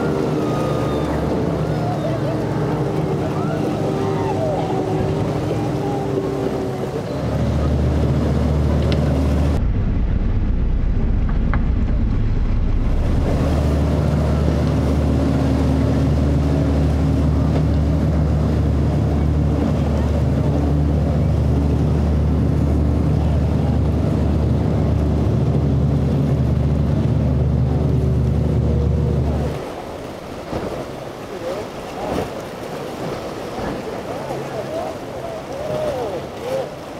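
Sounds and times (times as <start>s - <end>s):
motorboat engine drone: 0.0s - 36.9s
wind on microphone: 2.8s - 29.8s.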